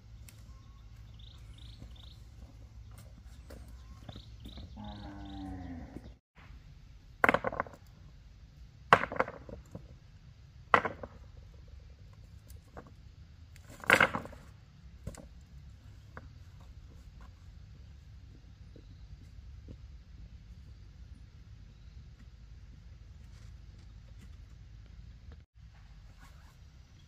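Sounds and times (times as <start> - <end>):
low animal call: 4.6 - 6.2.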